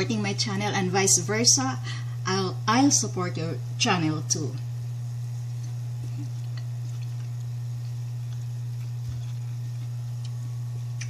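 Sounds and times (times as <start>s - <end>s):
steady low hum: 0.0s - 11.0s
faint eating sounds: 5.0s - 11.0s.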